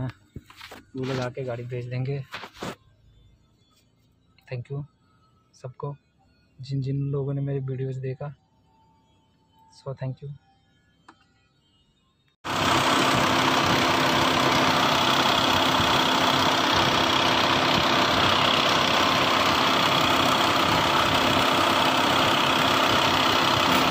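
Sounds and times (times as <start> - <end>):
diesel engine idling: 12.5 - 23.9.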